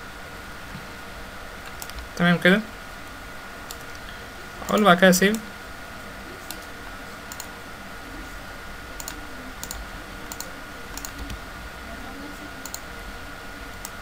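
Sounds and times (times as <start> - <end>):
mouse and keyboard clicks: 1.6 - 2.1, 9.0 - 11.4, 12.6 - 12.8.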